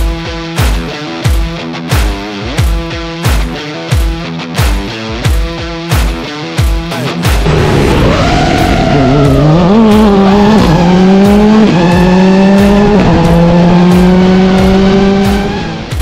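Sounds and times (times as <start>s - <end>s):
car engine accelerating hard: 7.4s - 16.0s.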